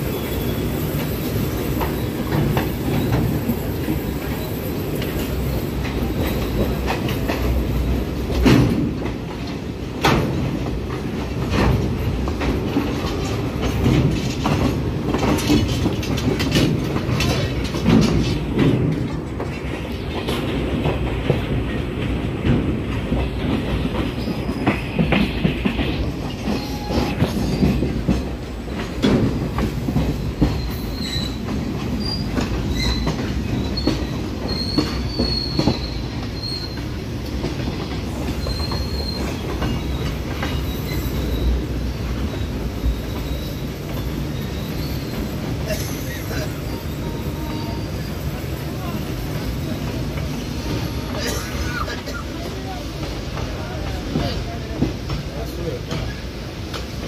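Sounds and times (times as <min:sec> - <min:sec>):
train carriages rumbling: 0:00.0 - 0:57.0
wheels hissing on rails: 0:00.0 - 0:57.0
wheels knocking over rail joints: 0:08.3 - 0:26.6.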